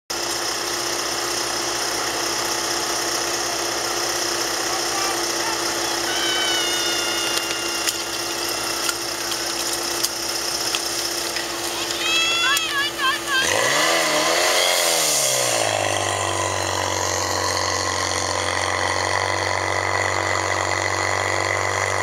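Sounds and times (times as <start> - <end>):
small pump engine humming: 0.1 - 22.0
high held tone: 4.6 - 9.7, 11.4 - 14.8.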